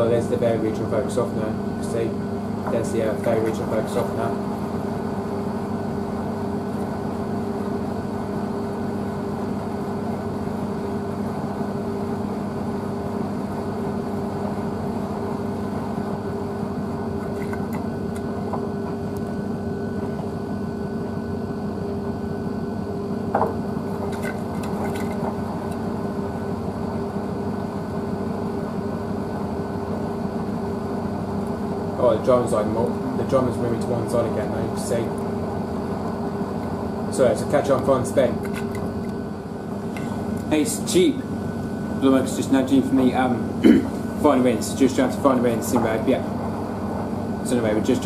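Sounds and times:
washing machine motor hum: 0:00.0 - 0:48.0.

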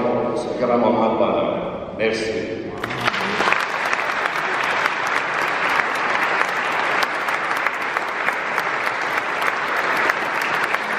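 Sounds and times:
crowd applauding: 0:02.8 - 0:10.9.

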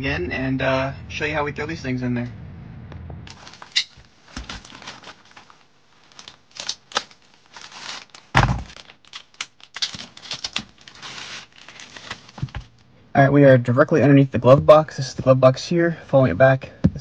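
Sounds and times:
plastic wrapping crinkling and tearing: 0:04.3 - 0:12.6.

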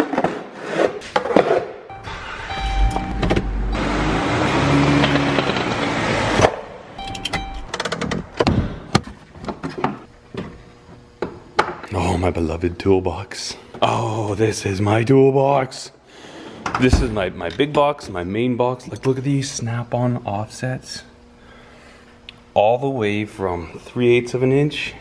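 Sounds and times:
minivan engine running: 0:01.9 - 0:07.8.

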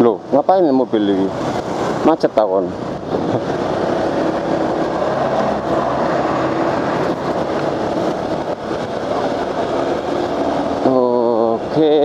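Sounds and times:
road and wind noise: 0:00.0 - 0:12.0
motorcycle engine drone: 0:02.7 - 0:12.0.

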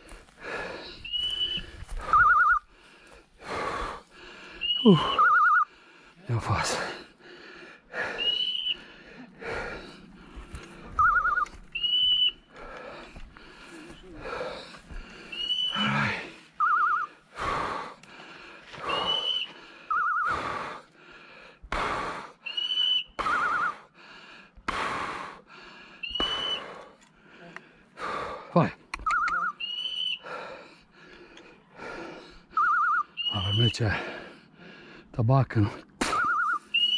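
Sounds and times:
footsteps rustling through dry brush: 0:00.0 - 0:03.4, 0:10.1 - 0:15.7.

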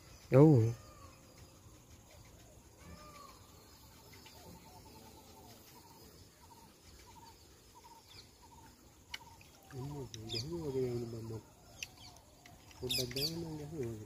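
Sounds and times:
small animal chirping: 0:00.0 - 0:10.5.

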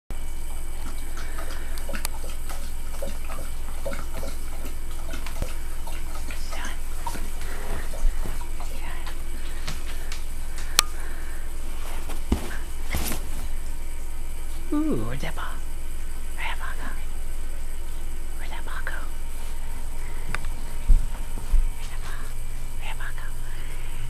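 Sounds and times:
steady low hum: 0:00.1 - 0:24.0
faint rustles and taps: 0:11.7 - 0:13.6, 0:20.3 - 0:22.7.

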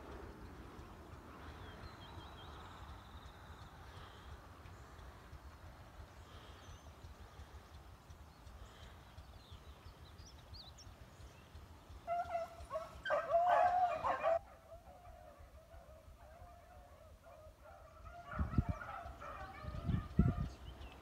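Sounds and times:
hounds baying: 0:12.0 - 0:20.6.

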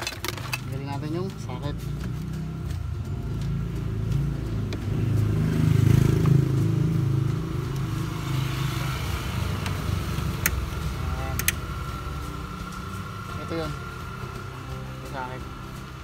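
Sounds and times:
vehicle engine rumbling: 0:00.0 - 0:16.0
sharp clicks: 0:11.3 - 0:11.7.

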